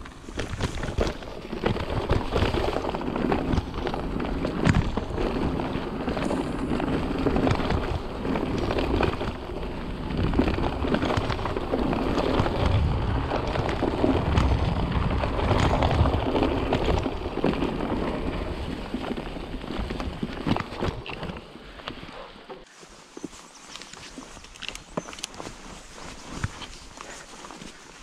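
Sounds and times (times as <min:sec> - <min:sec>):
bike rattling and knocking: 0:00.0 - 0:22.0
bike tyres rolling over dry leaves: 0:00.0 - 0:28.0.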